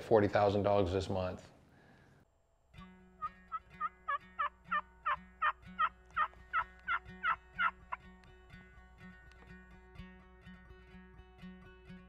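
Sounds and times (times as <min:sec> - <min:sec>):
turkey yelping: 0:03.2 - 0:07.9.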